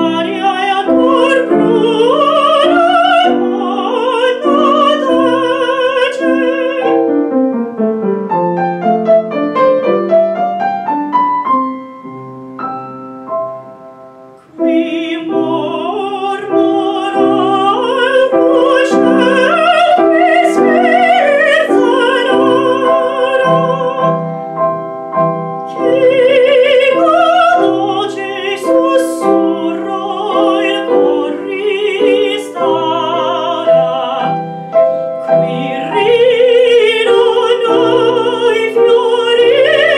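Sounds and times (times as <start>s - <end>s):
woman singing operatically: 0.0s - 7.1s, 14.5s - 24.2s, 25.7s - 34.6s, 35.2s - 39.9s
piano: 0.0s - 39.9s.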